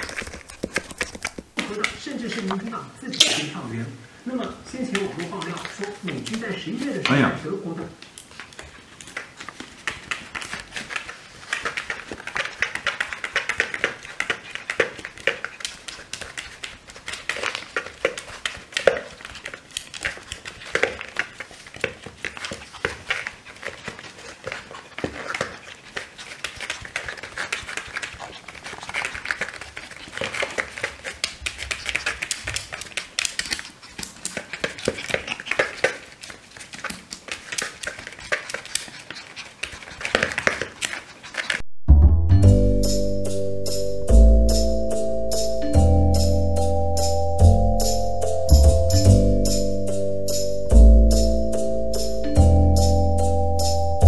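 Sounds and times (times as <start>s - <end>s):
puppy claws scratching plastic: 0.0s - 2.7s, 4.8s - 7.2s, 8.0s - 41.6s.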